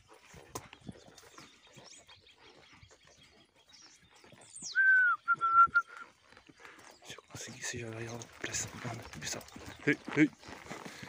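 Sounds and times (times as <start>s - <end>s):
faint high bird chirps: 0.7s - 6.2s.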